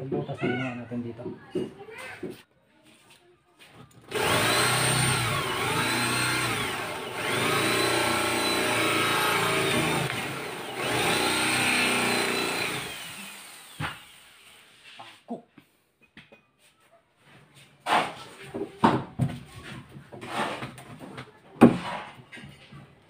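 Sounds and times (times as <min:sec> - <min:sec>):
electric drill boring into wood: 0:04.0 - 0:14.7.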